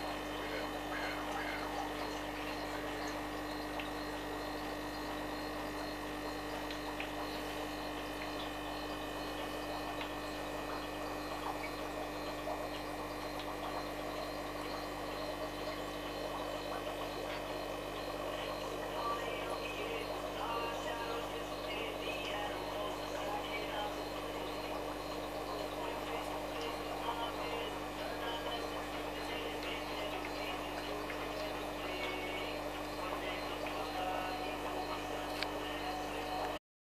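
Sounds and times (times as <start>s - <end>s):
aquarium filter humming: 0.0s - 36.6s
faint irregular ticks: 4.8s - 17.7s.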